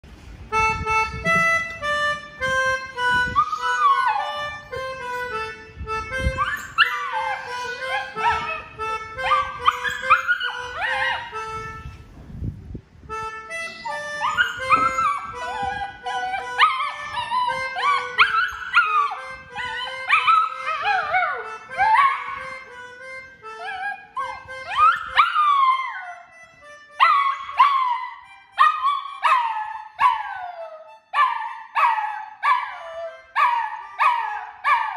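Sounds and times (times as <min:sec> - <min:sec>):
melodica playing a tune: 0:00.4 - 0:12.2, 0:13.0 - 0:34.9
dog howling: 0:03.4 - 0:04.6, 0:06.4 - 0:11.4, 0:13.8 - 0:22.4, 0:23.6 - 0:26.2, 0:27.0 - 0:34.9.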